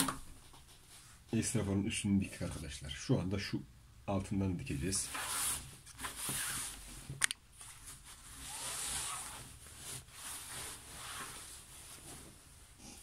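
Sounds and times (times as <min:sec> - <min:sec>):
cloth rustling: 0:04.8 - 0:12.8.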